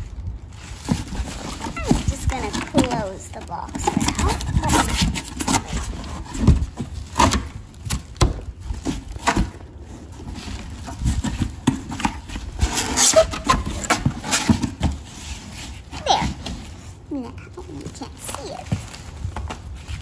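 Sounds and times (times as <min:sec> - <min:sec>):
paper rustling: 0:00.0 - 0:20.0
cardboard box knocks and thumps: 0:00.8 - 0:16.8.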